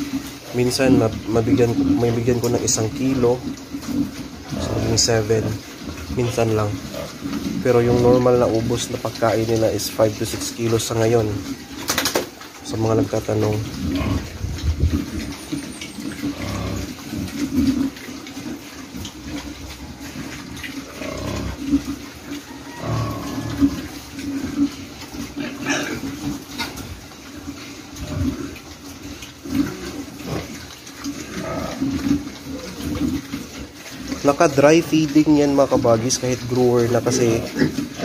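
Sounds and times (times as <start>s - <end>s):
pigs chomping feed: 0.0s - 38.0s
pigs grunting: 0.0s - 38.0s.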